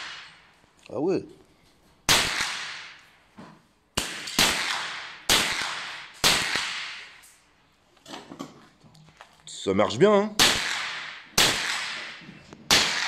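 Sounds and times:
gunshot echo: 2.1 - 3.0, 4.0 - 7.2, 10.4 - 13.0
suppressed rifle shots: 10.4 - 13.0.

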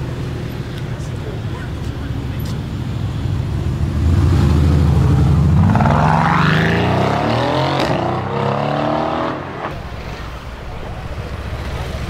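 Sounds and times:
car engine accelerating hard: 3.6 - 9.8.

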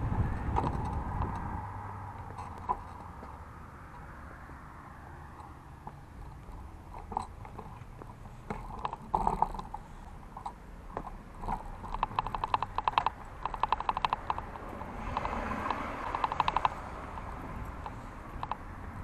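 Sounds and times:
bicycle freewheel ticking: 11.4 - 14.5, 15.1 - 16.8.

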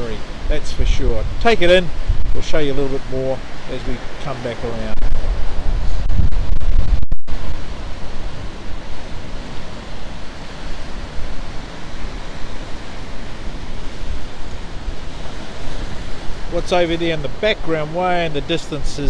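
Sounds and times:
sea surf washing around rocks: 0.0 - 19.0
strong wind buffeting microphone: 0.0 - 19.0.

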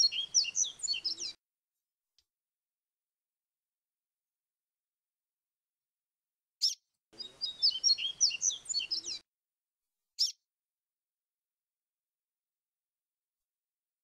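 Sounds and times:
bird singing high fluty notes: 0.0 - 1.4, 6.6 - 9.2
sharp bird chirp: 0.0 - 1.4, 6.6 - 9.2, 10.2 - 10.4.

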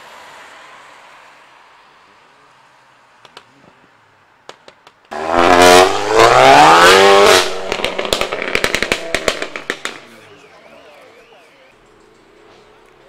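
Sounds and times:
exhaust pops and crackles: 4.4 - 10.3
car engine accelerating hard: 5.1 - 10.0.

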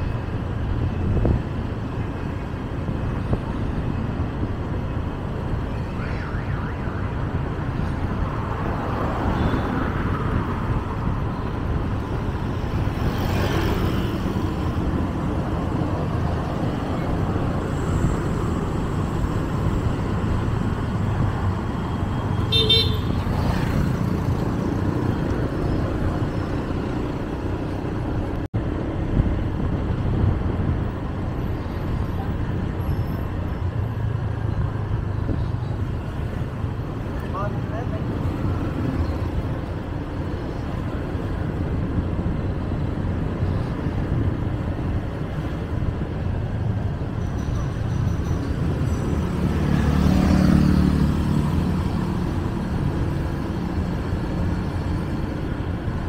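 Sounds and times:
road traffic while driving: 0.0 - 56.0
car horn toot: 22.4 - 23.2.

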